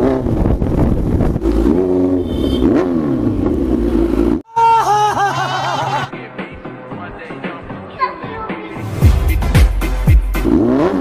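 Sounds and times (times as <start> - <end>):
motorcycle engine revving: 0.0 - 4.4, 9.8 - 11.0
music: 5.5 - 11.0.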